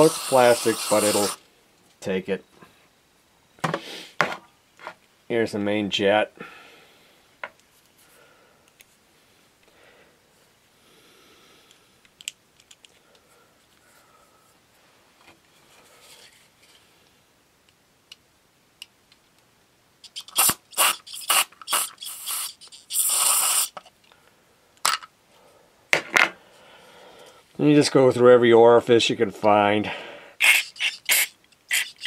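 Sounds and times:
aerosol spray hissing bursts: 0:00.0 - 0:01.4, 0:20.0 - 0:23.8, 0:30.4 - 0:32.0.

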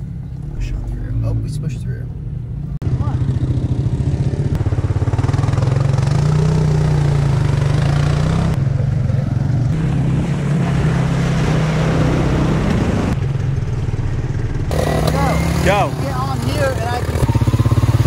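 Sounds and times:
vehicle engines running under load: 0:00.0 - 0:18.0
water churning and splashing: 0:09.8 - 0:13.2.

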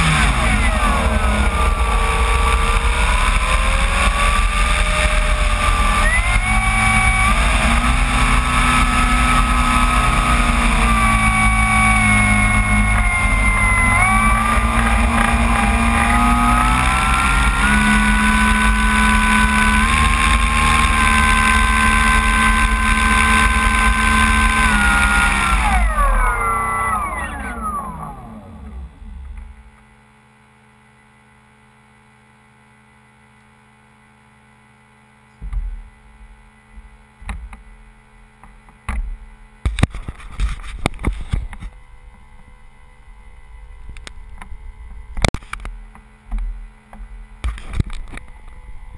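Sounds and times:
model plane motor whine: 0:00.0 - 0:29.8
faint steady hum: 0:00.0 - 0:48.9.

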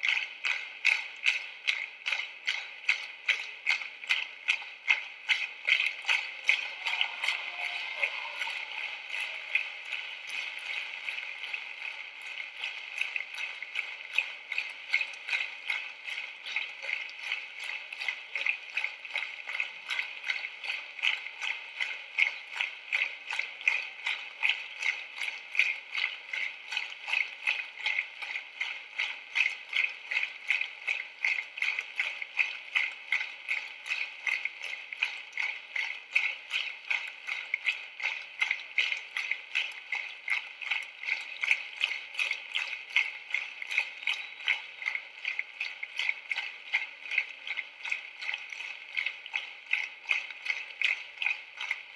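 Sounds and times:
hands clapping in unison: 0:05.5 - 0:15.7.

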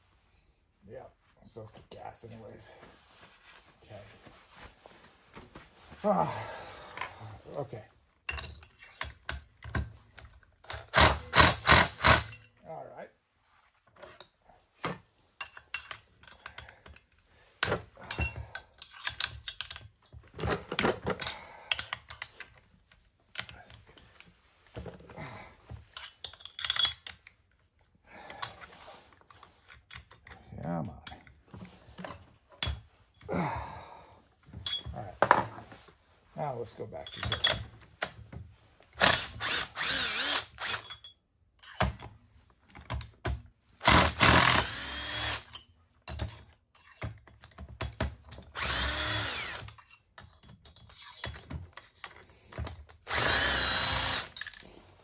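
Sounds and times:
driver and metal parts clinking: 0:10.6 - 0:12.6, 0:15.4 - 0:22.6, 0:25.9 - 0:27.4, 0:37.0 - 0:37.7, 0:38.9 - 0:42.2, 0:44.7 - 0:48.8, 0:49.4 - 0:52.2, 0:53.6 - 0:54.8
cordless power driver spinning: 0:39.0 - 0:40.8, 0:43.8 - 0:45.5, 0:48.6 - 0:49.7, 0:53.1 - 0:54.4.

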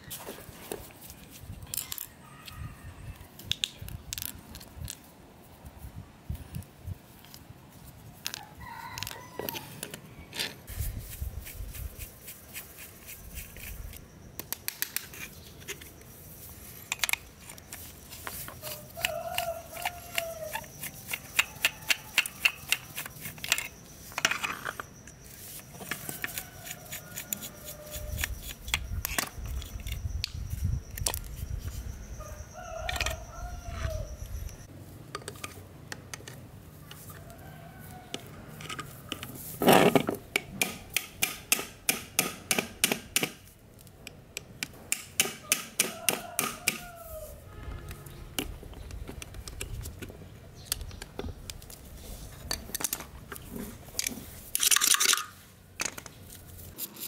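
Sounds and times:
tools clicking on metal parts: 0:16.9 - 0:25.2, 0:54.0 - 0:56.1.

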